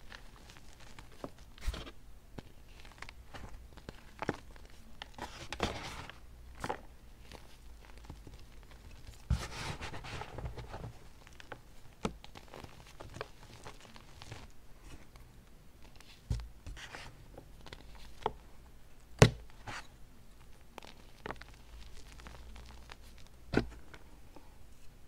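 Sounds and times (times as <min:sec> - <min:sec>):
chalk crunching and rustling: 0:00.0 - 0:15.2.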